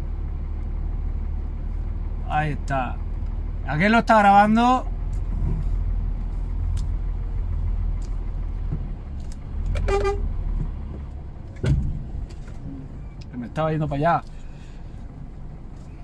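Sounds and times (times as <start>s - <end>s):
diesel engine drone: 0.0s - 16.0s
short high horn toot: 9.8s - 10.4s.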